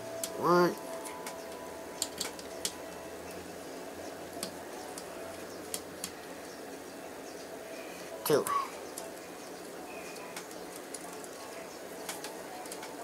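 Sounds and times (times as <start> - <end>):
faint steady hum: 0.0 - 13.0
small laptop parts clicking: 1.1 - 2.8, 12.0 - 13.0.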